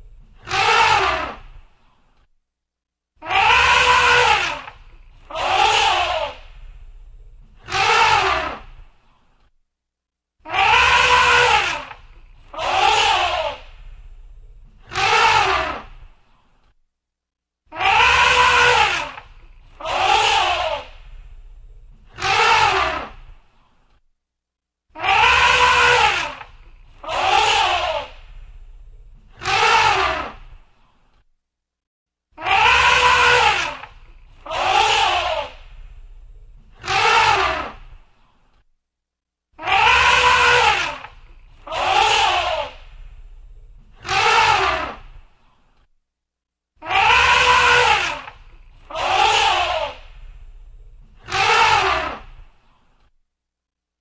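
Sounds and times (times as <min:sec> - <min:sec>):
elephant trumpeting: 0:00.4 - 0:01.4, 0:03.2 - 0:06.4, 0:07.6 - 0:08.7, 0:10.4 - 0:13.7, 0:14.8 - 0:15.9, 0:17.7 - 0:21.2, 0:22.1 - 0:23.2, 0:25.0 - 0:28.4, 0:29.3 - 0:30.4, 0:32.4 - 0:36.0, 0:36.8 - 0:38.0, 0:39.6 - 0:45.2, 0:46.8 - 0:52.4.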